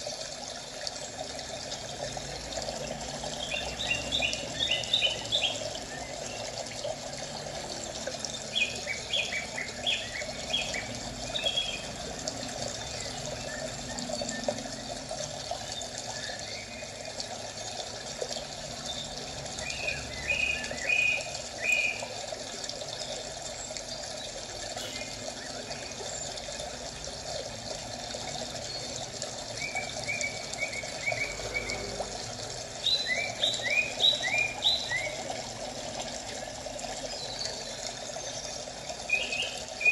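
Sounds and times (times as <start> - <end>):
water rushing: 0.0 - 39.9
birds chirping: 3.4 - 6.6, 8.3 - 12.0, 28.6 - 35.3.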